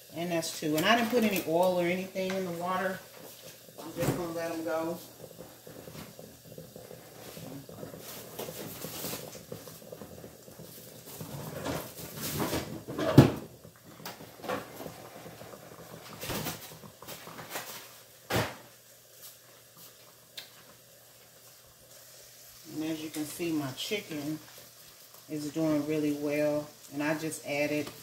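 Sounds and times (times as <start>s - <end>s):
chicken frying hiss: 0.0s - 28.0s
cupboard doors and cookware clunking: 11.2s - 13.6s.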